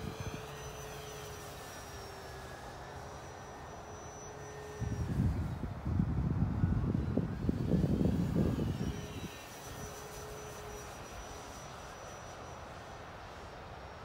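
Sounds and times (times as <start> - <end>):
model plane motor whine: 0.0 - 14.0
wind buffeting microphone: 4.6 - 10.2.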